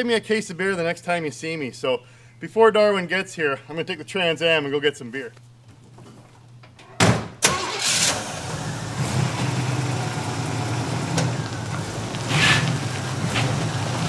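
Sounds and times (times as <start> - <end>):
car engine starting: 7.4 - 14.0
car engine lumpy idle: 8.3 - 14.0.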